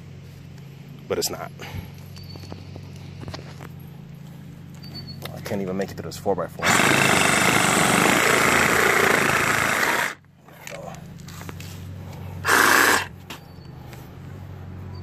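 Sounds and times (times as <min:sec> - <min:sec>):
reciprocating saw cutting wood: 0:06.6 - 0:10.2, 0:12.4 - 0:13.1.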